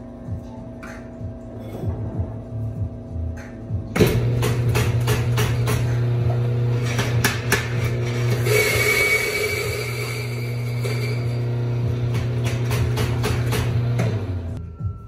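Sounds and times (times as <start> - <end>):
espresso machine pump hum: 5.9 - 14.5.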